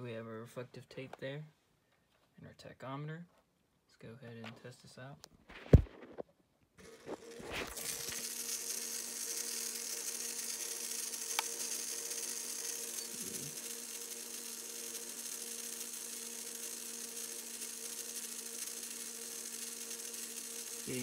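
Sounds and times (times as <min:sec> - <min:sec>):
small motor humming: 0:06.8 - 0:21.0.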